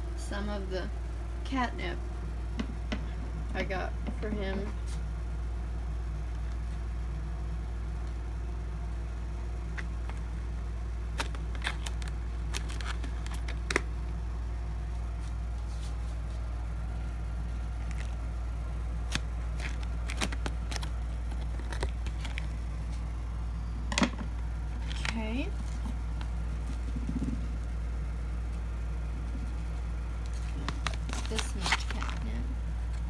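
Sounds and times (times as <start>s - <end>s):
steady low hum: 0.0s - 33.0s
plastic pouch crinkling: 11.1s - 14.0s, 17.4s - 23.2s, 24.7s - 27.7s, 29.2s - 33.0s.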